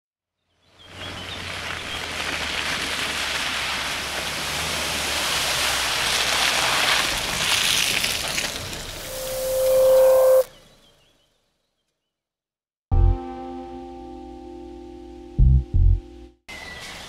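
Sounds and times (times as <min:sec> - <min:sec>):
tyres splashing through mud: 0:00.8 - 0:09.0
car engine humming: 0:02.6 - 0:10.5.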